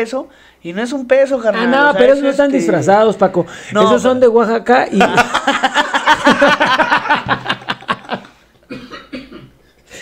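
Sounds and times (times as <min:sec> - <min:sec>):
men laughing: 0:04.9 - 0:08.4.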